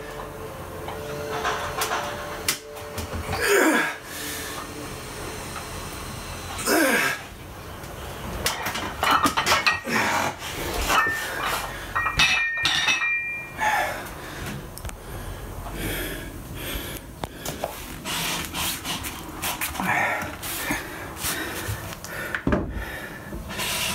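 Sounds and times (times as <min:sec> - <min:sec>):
metal dumbbell plates clanking: 0:08.5 - 0:10.1, 0:10.8 - 0:13.5
ringing metal clink: 0:12.0 - 0:13.5.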